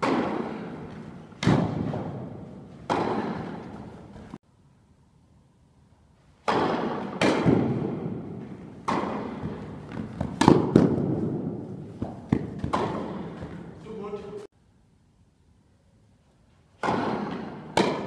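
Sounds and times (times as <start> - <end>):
tennis ball hits and bounces: 0.0 - 4.2, 6.4 - 13.7, 16.8 - 18.0.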